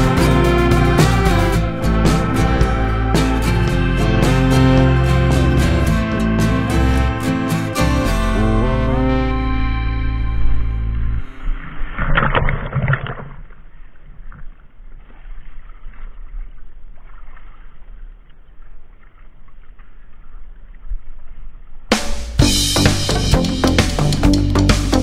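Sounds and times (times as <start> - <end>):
water splashing and sloshing: 11.2 - 21.9.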